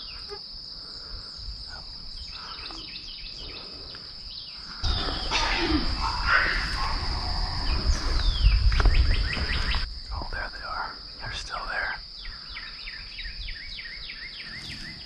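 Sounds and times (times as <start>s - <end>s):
birds chirping: 0.0s - 15.0s
high-pitched insect trill: 0.0s - 15.0s
low rumble buffeting microphone: 4.8s - 11.4s.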